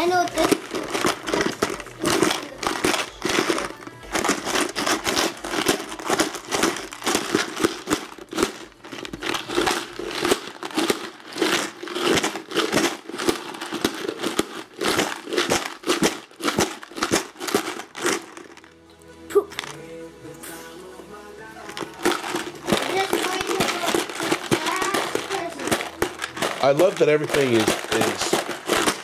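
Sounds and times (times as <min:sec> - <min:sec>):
paper crinkling and rustling: 0:00.0 - 0:18.7, 0:21.7 - 0:29.0.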